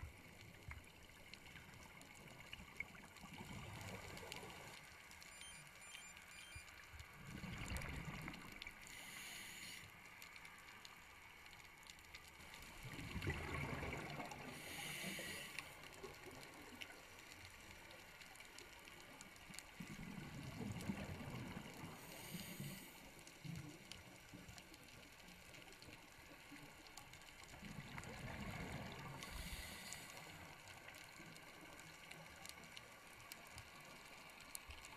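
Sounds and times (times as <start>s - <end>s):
regulator hiss: 8.9s - 9.9s, 14.6s - 15.6s
bubbles gurgling underwater: 12.8s - 14.5s.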